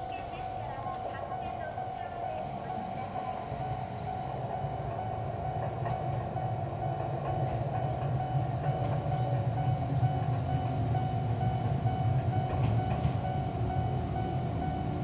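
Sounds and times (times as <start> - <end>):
train running with hum and rumble: 0.0 - 15.0.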